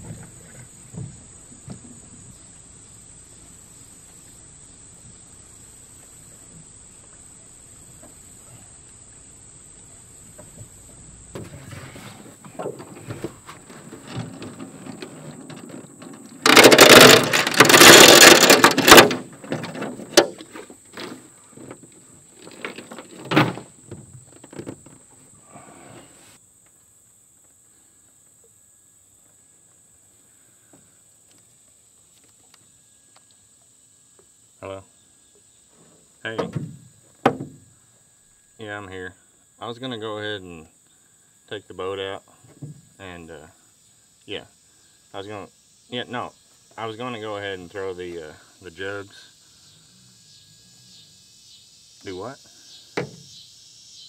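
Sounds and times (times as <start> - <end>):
insect drone: 0.0 - 54.0
rattling handling: 11.4 - 25.0
starter cord pulls: 14.1 - 20.3
outboard motor bursting: 15.0 - 19.5.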